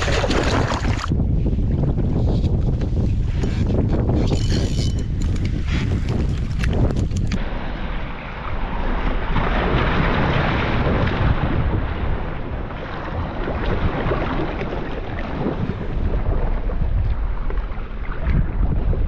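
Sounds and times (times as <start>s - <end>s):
sea water splashing against kayak: 0.0s - 4.2s, 5.1s - 19.0s
wind buffeting microphone: 0.0s - 19.0s.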